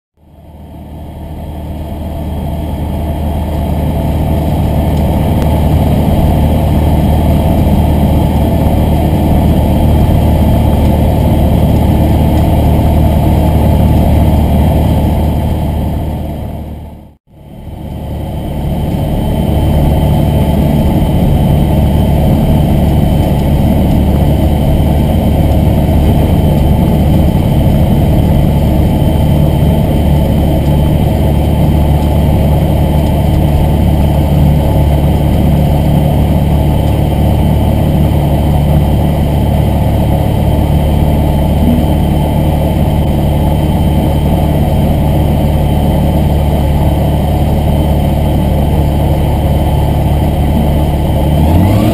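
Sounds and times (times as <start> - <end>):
aircraft engine and propeller running: 0.2 - 51.9.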